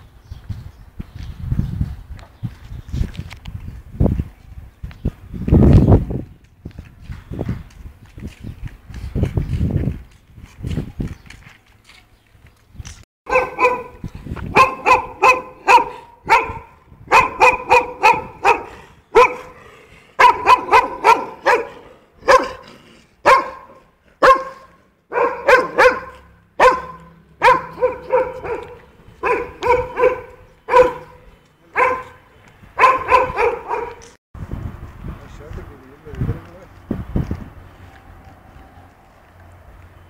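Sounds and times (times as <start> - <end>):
small dog barking: 13.3 - 19.6, 20.2 - 32.2, 32.8 - 34.0.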